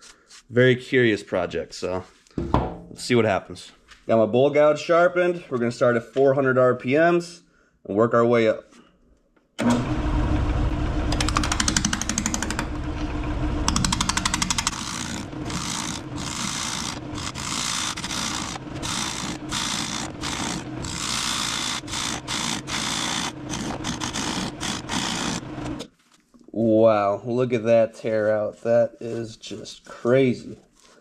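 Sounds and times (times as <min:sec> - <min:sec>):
tool bouncing ticks: 0:11.2 - 0:12.6, 0:13.7 - 0:14.8
gouge cutting wood on lathe: 0:13.7 - 0:25.8.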